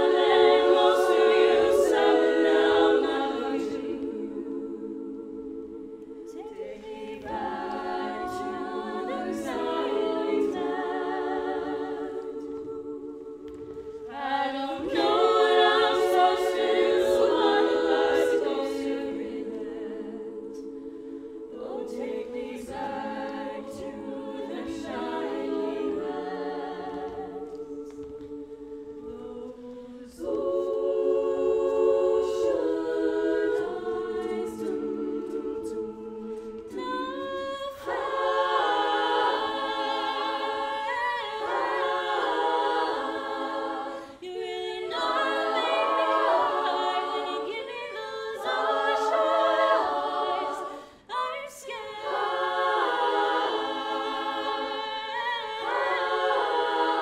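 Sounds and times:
women singing a cappella: 0.0s - 57.0s.

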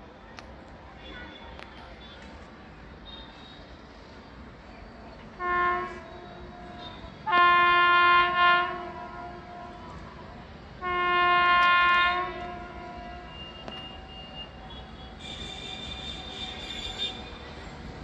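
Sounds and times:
train air horn blasts: 5.4s - 10.1s, 10.8s - 17.4s.

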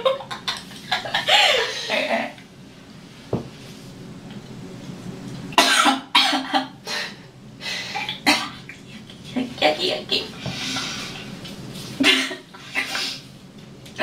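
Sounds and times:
woman coughing: 5.6s - 6.7s, 8.2s - 8.6s, 12.0s - 12.5s.

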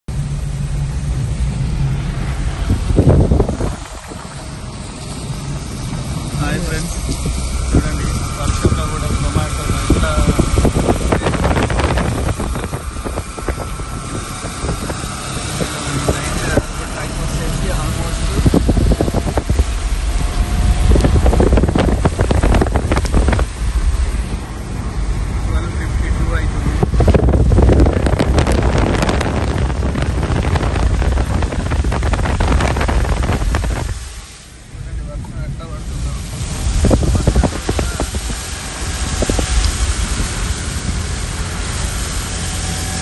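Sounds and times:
engine and tyre rumble: 0.0s - 43.0s
car road noise: 0.1s - 43.0s
wind buffeting microphone: 0.2s - 43.0s
raindrop ticks: 6.9s - 7.8s, 21.8s - 23.4s, 39.2s - 40.4s.

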